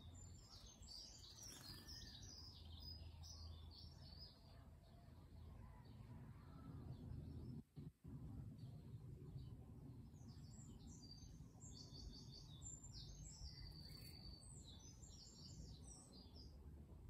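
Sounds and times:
songbird singing: 0.0s - 16.8s
faint low rumble: 0.0s - 17.0s.

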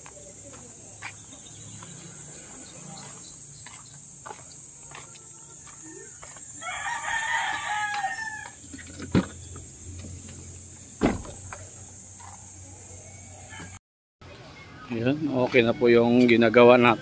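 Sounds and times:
rooster crowing: 4.8s - 8.6s, 13.1s - 13.8s.

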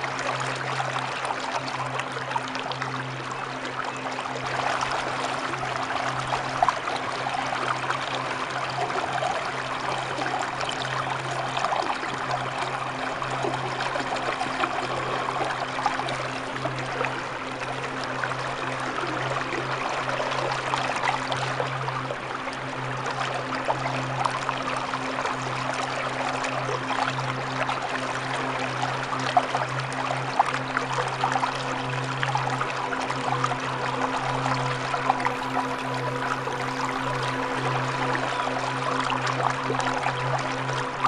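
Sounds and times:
low hum: 25.6s - 41.0s
waterfall rushing water: 35.2s - 41.0s.

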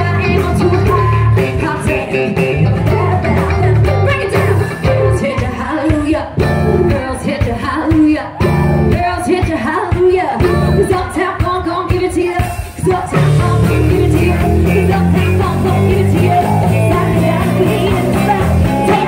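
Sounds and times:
drums: 0.0s - 19.0s
electric guitar: 0.0s - 19.0s
woman singing: 0.0s - 19.0s.

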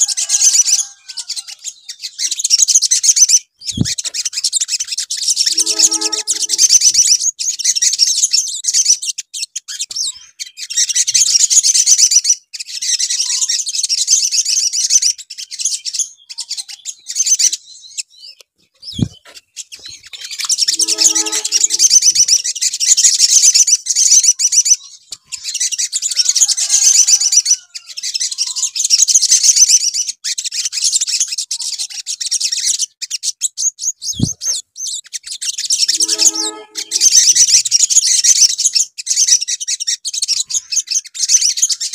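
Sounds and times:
sunbird trilling song: 0.0s - 12.0s, 14.4s - 26.1s, 32.5s - 41.9s.

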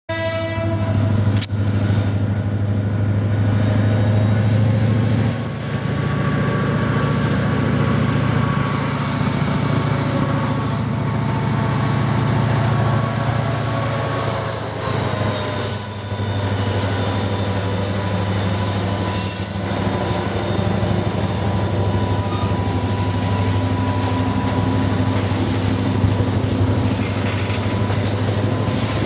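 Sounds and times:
diesel locomotive engine drone: 0.1s - 29.0s.

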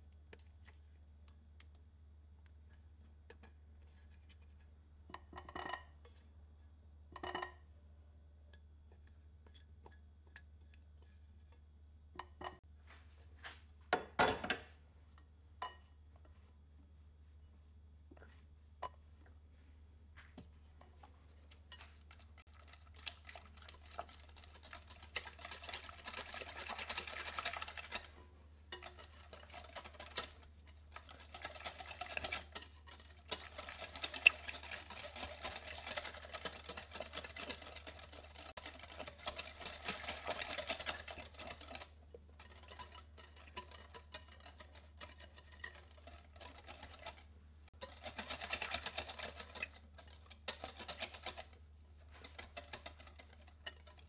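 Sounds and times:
whisk clicking against glass bowl: 21.7s - 54.0s.

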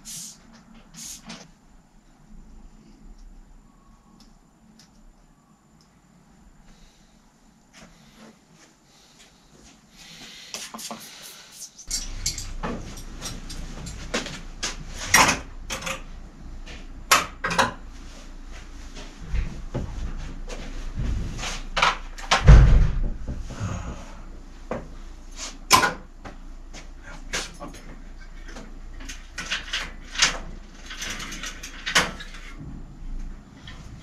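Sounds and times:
rubbing hiss: 0.0s - 1.5s, 9.0s - 11.9s
tools clicking and knocking on bicycle: 11.7s - 16.1s
heavy thump: 22.4s - 24.1s.

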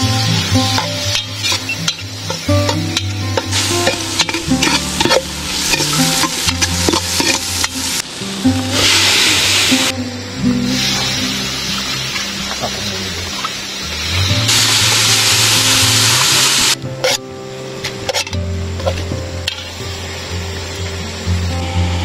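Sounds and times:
background music with bass line: 0.0s - 22.0s
vegetables sizzling in hot oil: 0.0s - 22.0s
metal ladle scraping pot: 0.8s - 8.0s, 17.0s - 17.2s, 18.0s - 19.7s.

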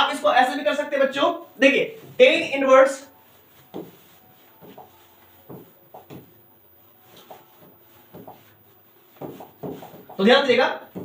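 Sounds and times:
pen writing on a board: 7.2s - 10.2s.

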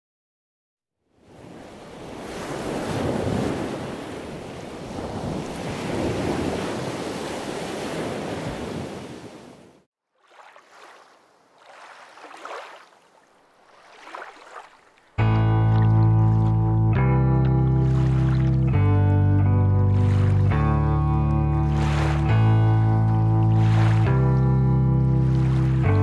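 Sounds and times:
water rushing past hull: 10.1s - 16.6s, 17.6s - 26.0s
water lapping: 10.1s - 16.8s, 17.4s - 26.0s.

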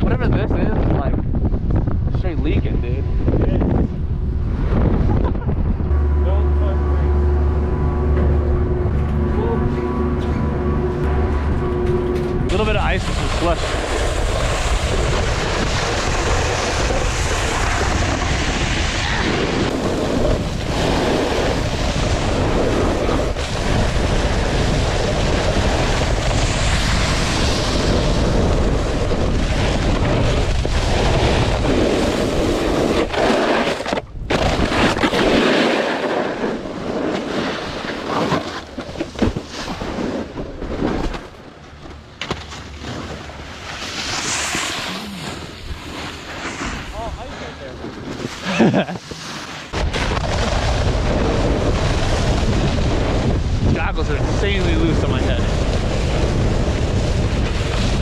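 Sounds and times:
wind buffeting microphone: 0.0s - 33.3s, 49.7s - 58.0s
snowboard scraping icy snow: 12.5s - 41.3s, 42.4s - 58.0s.

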